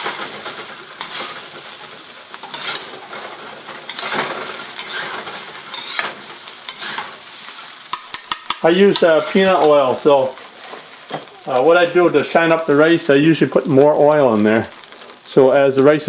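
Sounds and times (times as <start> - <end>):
rice sizzling in a wok: 0.0 - 16.0
metal ladle scraping a wok: 1.0 - 9.7.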